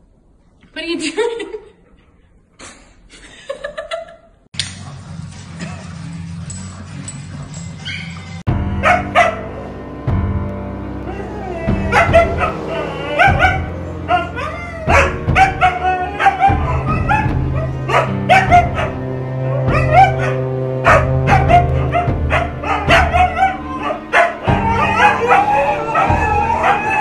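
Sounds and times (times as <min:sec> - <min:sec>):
background music: 0:04.6 - 0:27.0
dogs barking and yipping: 0:06.5 - 0:09.7, 0:11.3 - 0:27.0
dogs howling: 0:11.0 - 0:27.0.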